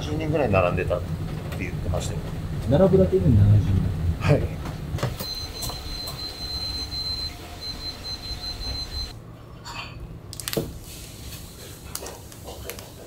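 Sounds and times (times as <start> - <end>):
kitchen background noise: 4.6 - 13.0
high-pitched whine: 5.2 - 9.1.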